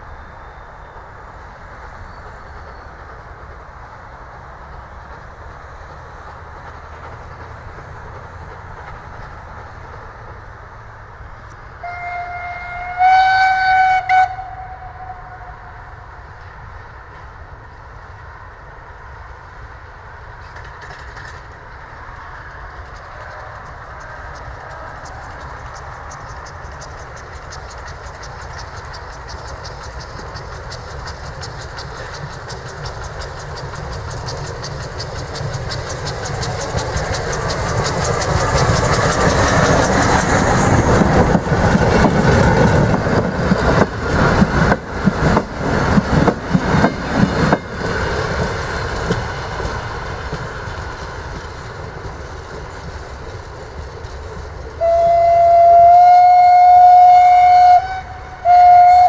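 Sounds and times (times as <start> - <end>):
steam locomotive passing: 0.0 - 59.0
wheels clattering over rail joints: 4.5 - 11.1, 20.0 - 54.9
steam whistle: 11.8 - 15.8, 54.8 - 59.0.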